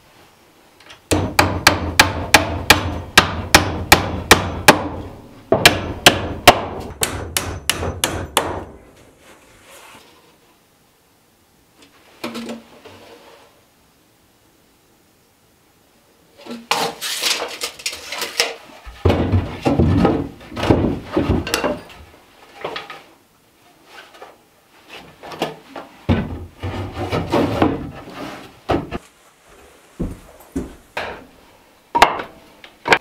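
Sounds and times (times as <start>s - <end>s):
wood knocking and scraping on wood: 16.4s - 23.1s, 23.8s - 31.3s.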